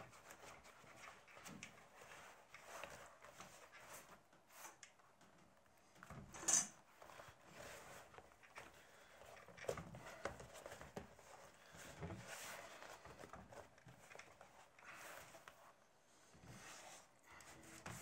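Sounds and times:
hands rubbing leather on table: 7.0s - 15.8s.

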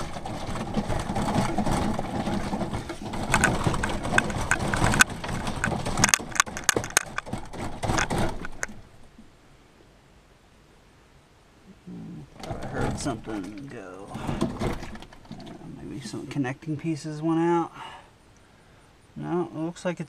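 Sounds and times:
sharp knocks: 0.0s - 8.9s
wire shelving rattling and clanking: 0.0s - 9.0s, 12.4s - 16.2s.

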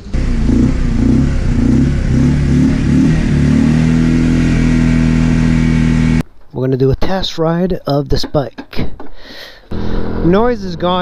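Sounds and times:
scooter engine revving and idling: 0.0s - 6.2s.

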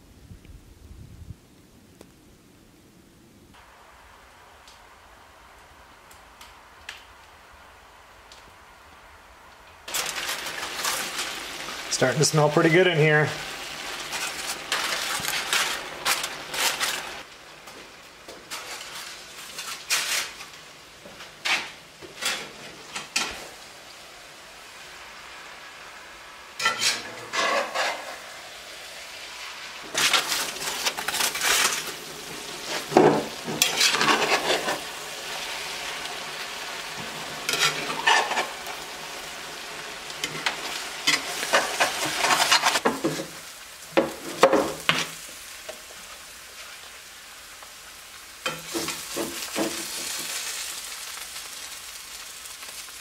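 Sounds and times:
meat and potatoes sizzling: 9.8s - 53.0s
spoon scraping a pan: 26.6s - 28.3s, 32.6s - 34.9s, 37.4s - 38.8s, 40.2s - 43.3s.

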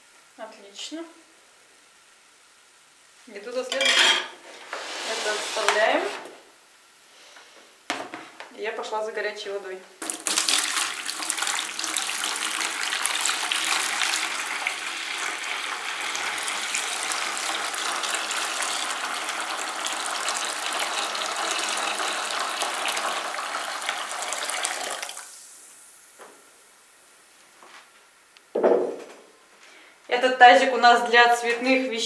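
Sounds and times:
hot water pouring into plastic basin: 10.0s - 25.8s
faint fizz of dissolving granules: 10.0s - 25.9s.

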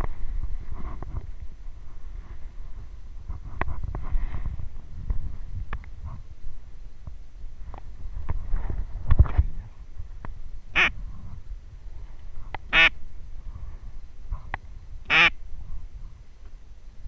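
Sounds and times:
duck call quacks: 12.7s - 12.9s, 15.1s - 15.4s.

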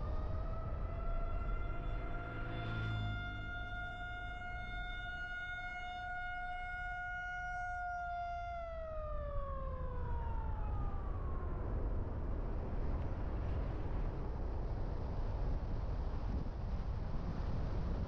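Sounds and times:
car engine and tyre noise: 0.0s - 6.7s, 8.5s - 18.0s
siren winding down: 0.0s - 12.0s.

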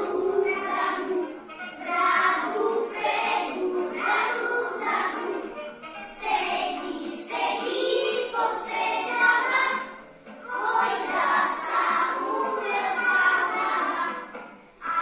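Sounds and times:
children singing in unison: 0.0s - 15.0s.

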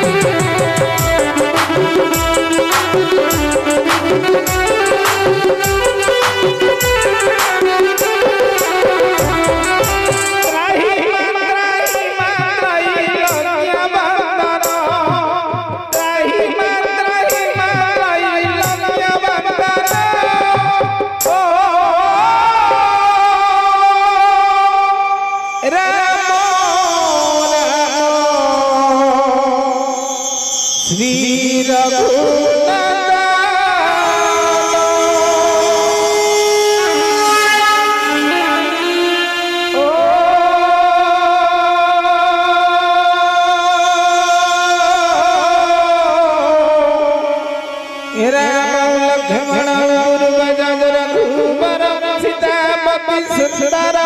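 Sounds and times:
rhythmic folk music with steady beat: 0.0s - 23.4s
instrumental accompaniment: 0.0s - 54.0s
person singing: 0.0s - 54.0s
long held note rich in overtones: 29.8s - 40.6s.

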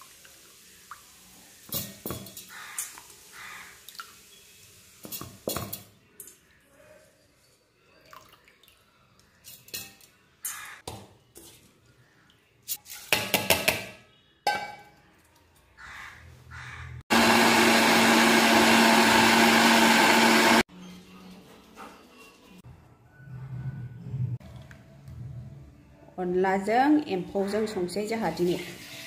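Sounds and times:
mixer grinder whirring: 17.1s - 20.6s.

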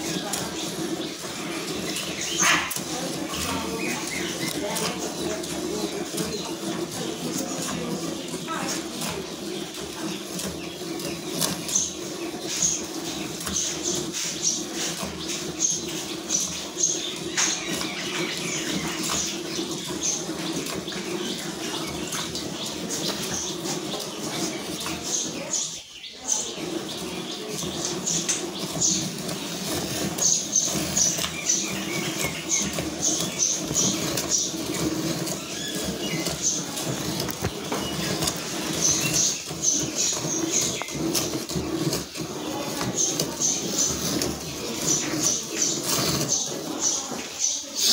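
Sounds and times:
milk squirting into metal pail: 0.0s - 25.8s, 26.4s - 47.9s
milk squirting into pail: 26.5s - 46.4s.

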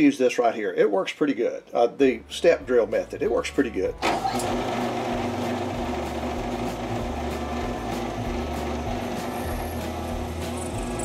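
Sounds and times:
drill press motor running: 4.0s - 11.0s.

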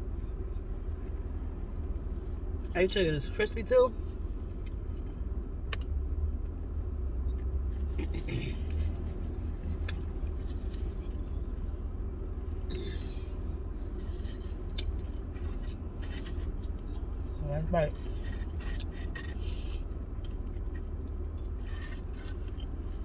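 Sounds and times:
low rumble in a car cabin: 0.0s - 23.0s
soft rustles: 8.6s - 17.2s
chewing crispy food: 14.0s - 23.0s.

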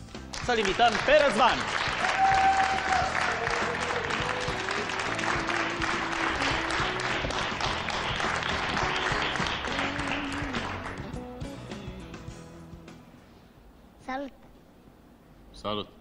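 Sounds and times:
audience applauding: 0.2s - 11.2s
entrance music: 0.4s - 13.2s.

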